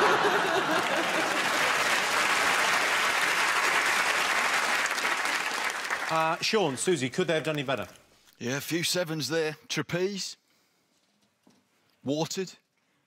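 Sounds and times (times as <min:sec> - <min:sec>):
audience laughter: 0:00.0 - 0:01.7
audience applauding: 0:00.0 - 0:07.4.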